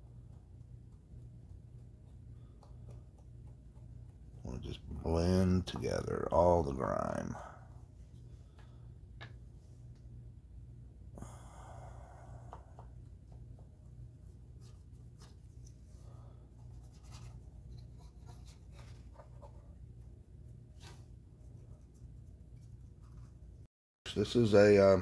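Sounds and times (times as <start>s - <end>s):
steady low hum: 0.0s - 25.0s
paintbrush scratching on plastic: 16.6s - 23.5s.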